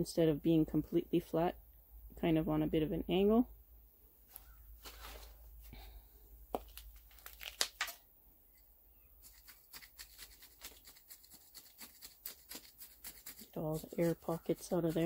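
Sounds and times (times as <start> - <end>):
gritty soil scrapes: 4.3 - 5.7, 9.2 - 15.0.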